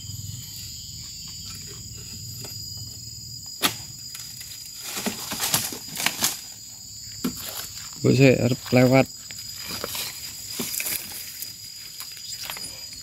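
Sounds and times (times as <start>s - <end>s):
high insect drone: 0.0s - 13.0s
chisel chopping palm crown: 3.6s - 3.9s.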